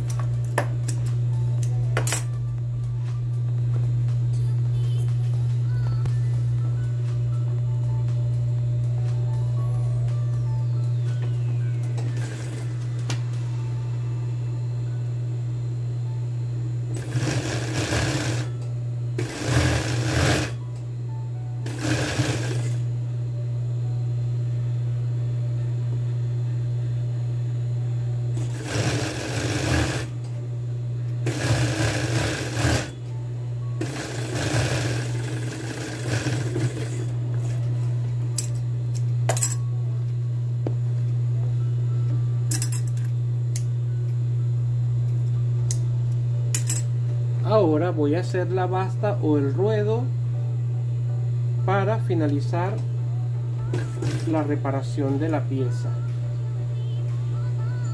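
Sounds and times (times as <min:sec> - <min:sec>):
motor humming: 0:00.0 - 0:47.4, 0:49.9 - 0:57.9
overlock machine stitching: 0:17.0 - 0:18.5, 0:19.2 - 0:20.6, 0:21.7 - 0:22.8, 0:28.4 - 0:30.1, 0:31.3 - 0:32.9, 0:33.8 - 0:37.2, 0:53.7 - 0:54.3.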